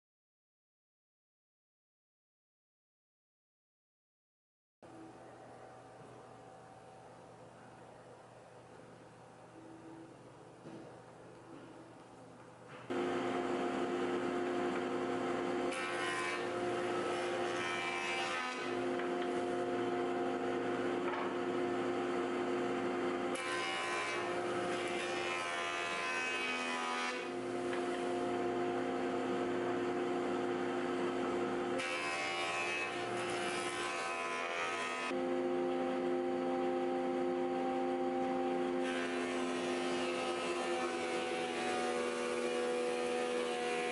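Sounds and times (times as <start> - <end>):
planer knives cutting wood: 12.9 - 35.2, 38.2 - 43.9
jointer-planer humming: 12.9 - 43.9.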